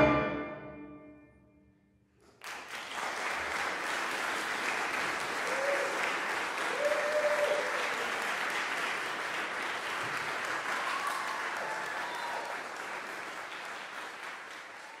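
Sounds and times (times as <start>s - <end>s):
audience applauding: 2.2s - 15.0s.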